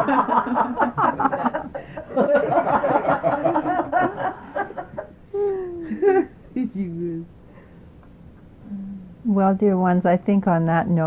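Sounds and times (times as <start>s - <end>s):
group laughing: 0.0s - 6.9s.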